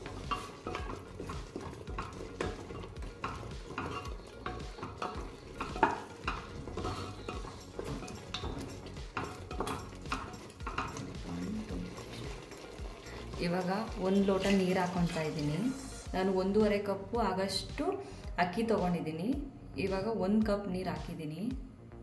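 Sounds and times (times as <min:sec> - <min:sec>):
wooden spatula scraping a pan: 0:00.0 - 0:16.0
faint sizzle: 0:00.0 - 0:16.1.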